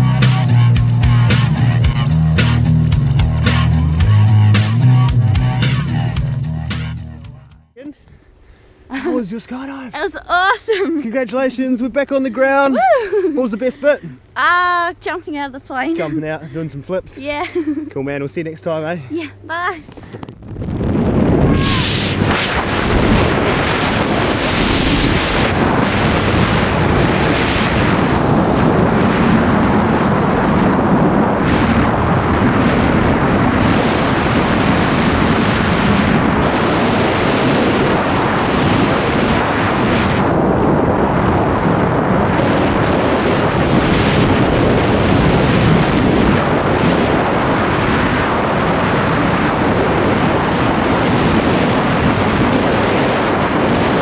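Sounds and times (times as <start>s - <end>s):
freefall wind rushing: 19.4s - 54.0s.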